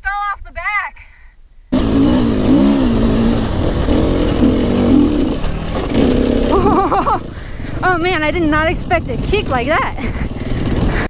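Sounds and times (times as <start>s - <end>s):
dirt bike engine revving: 1.7s - 11.0s.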